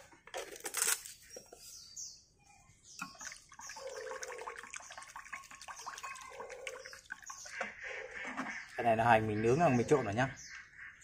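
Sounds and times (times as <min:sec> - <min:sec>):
liquid sloshing: 0:03.0 - 0:08.8.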